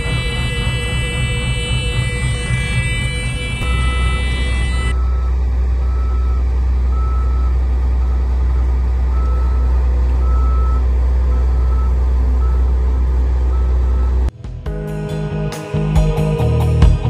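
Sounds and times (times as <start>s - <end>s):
faint reverse alarm beeping: 0.0s - 12.6s
diesel engine droning: 0.0s - 17.0s.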